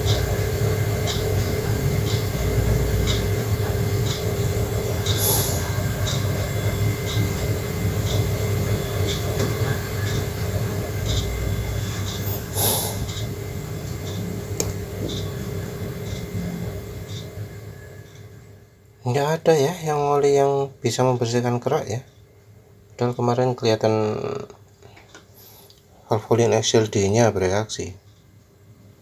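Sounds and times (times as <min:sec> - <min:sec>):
gas stove burner humming: 0:00.0 - 0:20.6.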